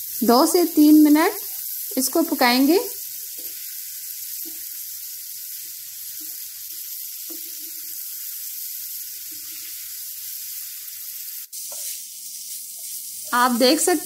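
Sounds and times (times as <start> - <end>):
meat sizzling on a hot griddle: 0.0 - 14.0.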